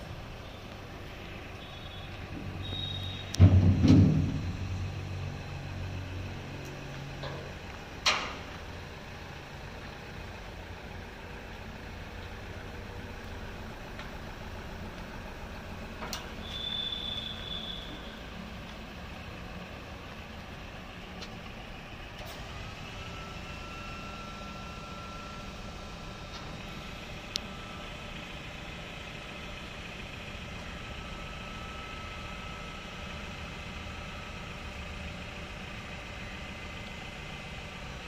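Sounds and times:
engine idling: 0:00.0 - 0:38.0
hydraulic whine: 0:01.5 - 0:05.3, 0:16.2 - 0:18.4.

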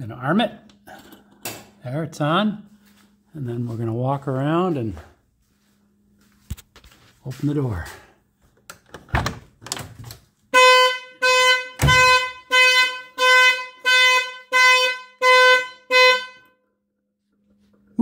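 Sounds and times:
car alarm horn blasts: 0:10.5 - 0:16.7.

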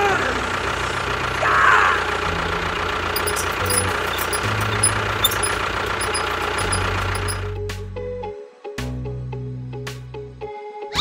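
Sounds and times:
tractor engine running: 0:02.4 - 0:07.5.

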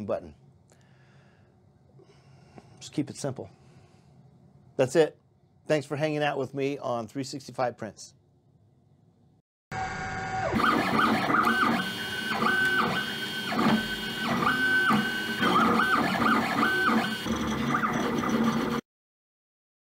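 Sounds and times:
stepper motors whining: 0:09.8 - 0:18.8.

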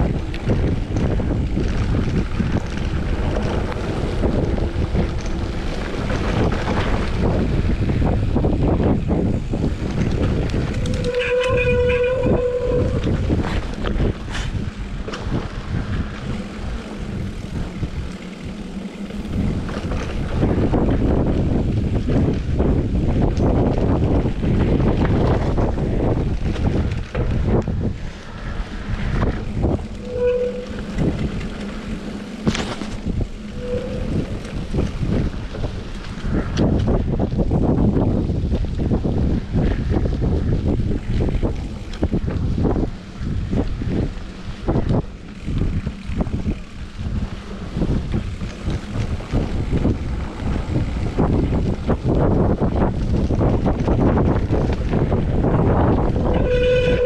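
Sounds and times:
mountain bike rolling on dirt: 0:00.0 - 0:57.0
wind buffeting microphone: 0:00.0 - 0:57.0
short squeaks: 0:10.9 - 0:13.0, 0:30.0 - 0:31.1, 0:33.5 - 0:34.4, 0:56.4 - 0:57.0
bike thumps and rattles: 0:19.3 - 0:30.0, 0:30.7 - 0:33.4.

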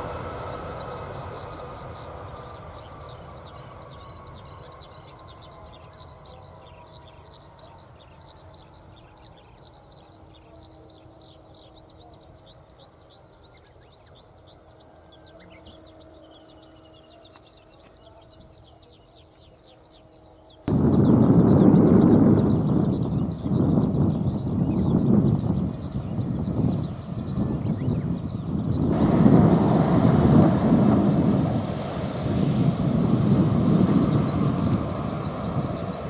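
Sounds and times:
jet engines whining: 0:00.0 - 0:11.9, 0:20.7 - 0:36.0
bird chirping: 0:00.0 - 0:31.0.

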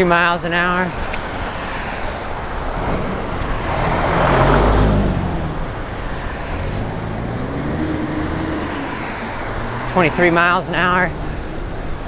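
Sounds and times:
vehicle passing: 0:00.0 - 0:12.0
wind and road noise: 0:00.0 - 0:12.0.

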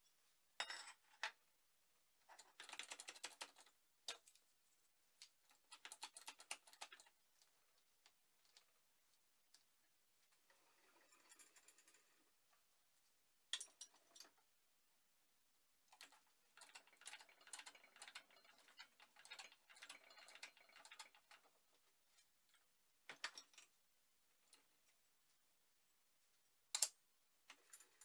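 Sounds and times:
small steel parts clicking: 0:26.7 - 0:28.0.

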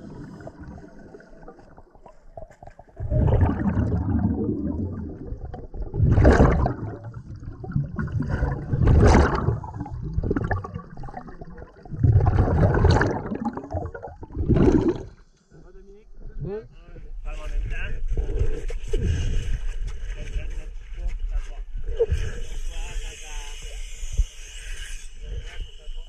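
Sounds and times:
water gurgling: 0:00.0 - 0:15.2
regulator exhaust bubbles rushing: 0:03.0 - 0:15.2.

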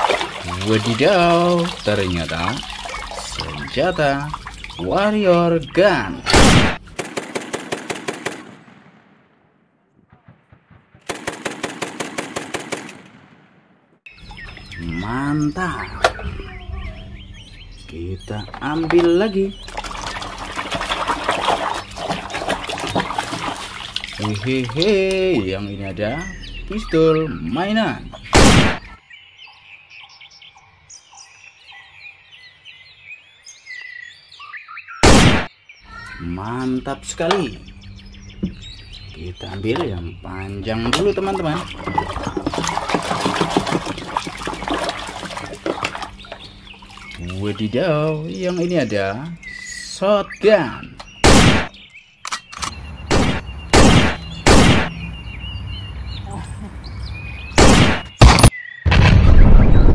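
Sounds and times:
birds chirping: 0:00.0 - 0:59.9
imitation machine-gun fire: 0:06.3 - 0:09.4, 0:10.1 - 0:13.6, 0:28.3 - 0:28.8, 0:35.0 - 0:35.5, 0:51.2 - 0:51.7, 0:53.1 - 0:54.9, 0:57.6 - 0:59.9.

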